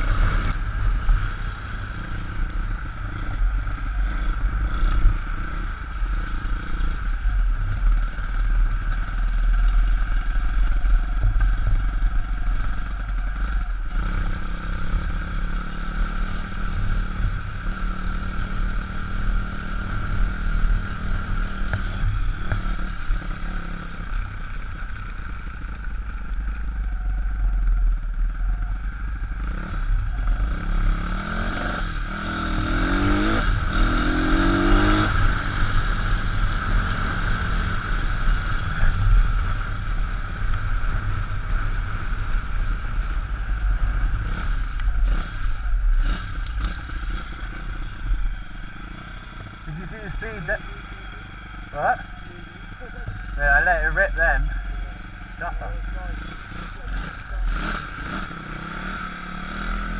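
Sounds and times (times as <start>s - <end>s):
motorbike engine revving: 29.2s - 59.9s.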